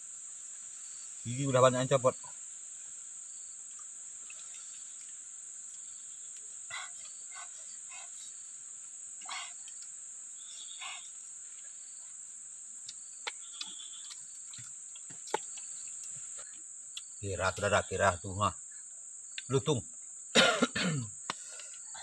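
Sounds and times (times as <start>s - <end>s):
high-pitched insect chorus: 0.0s - 22.0s
short animal calls: 6.7s - 8.3s, 9.2s - 9.7s, 10.4s - 11.2s, 13.3s - 14.2s.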